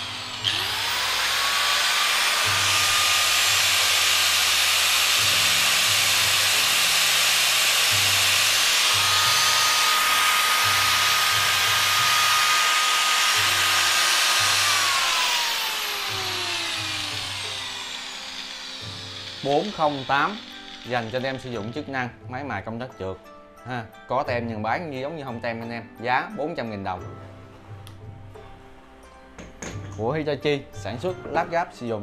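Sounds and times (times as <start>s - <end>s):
angle grinder whining: 0.0s - 21.8s.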